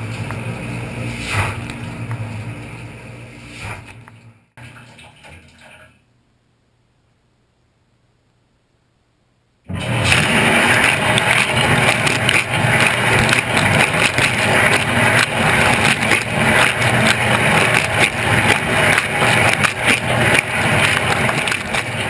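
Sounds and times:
wash pump hum: 9.7 - 22.0
water spattering inside dishwasher: 9.7 - 22.0.

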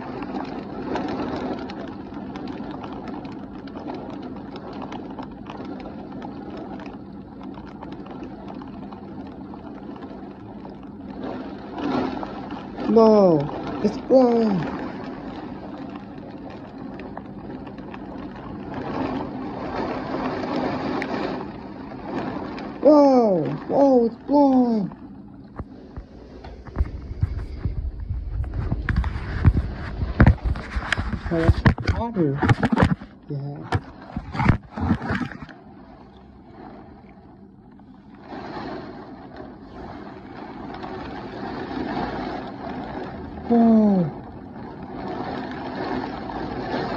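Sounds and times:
heavy rain pouring: 0.0 - 46.9
raindrops ticking: 0.0 - 46.9
wind rumble on microphone: 0.0 - 46.9
wind gusting: 18.3 - 33.0.

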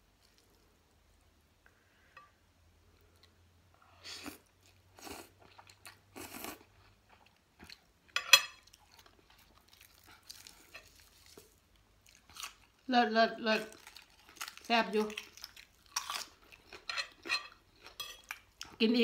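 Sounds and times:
chewing: 8.5 - 12.8, 13.6 - 18.8.

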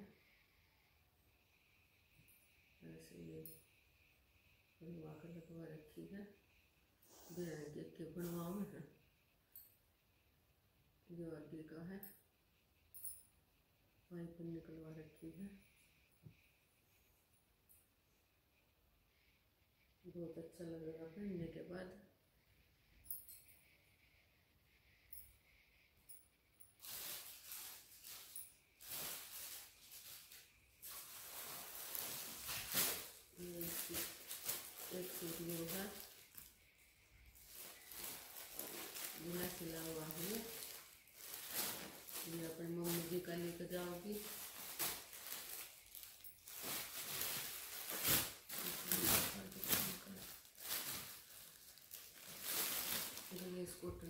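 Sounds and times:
plastic bags crinkling: 26.8 - 36.6, 37.2 - 54.0.

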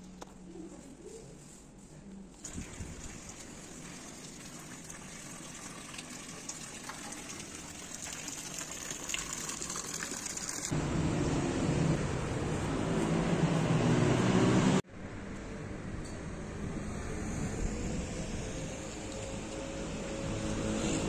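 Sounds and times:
fountain splashing: 2.4 - 10.7
street traffic noise: 9.3 - 21.0.

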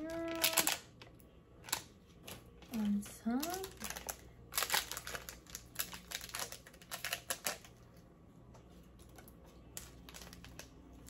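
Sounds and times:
sachets being torn open: 0.0 - 2.4, 3.4 - 7.8, 9.1 - 11.0
plastic sachets crinkling: 0.0 - 8.1, 8.8 - 11.0.

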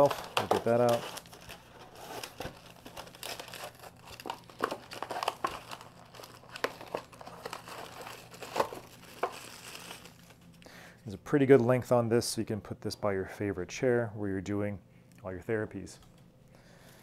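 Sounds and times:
packaging crinkling: 0.0 - 10.6.

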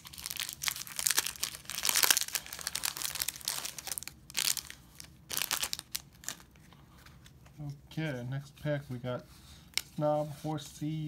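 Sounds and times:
foil wrapper tearing open: 0.0 - 6.4
foil wrapper crinkling: 0.0 - 6.6.

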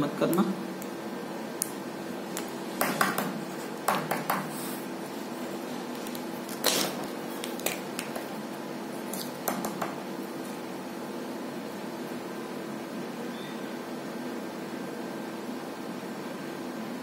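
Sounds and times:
steady low hum: 0.0 - 17.0
pens and paper rustling on desk: 3.5 - 10.6.

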